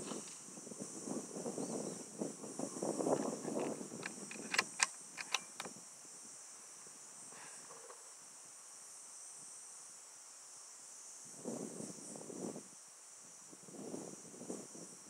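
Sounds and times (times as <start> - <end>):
crickets droning: 0.0 - 15.0
air rifle cocking clicks: 4.0 - 5.7.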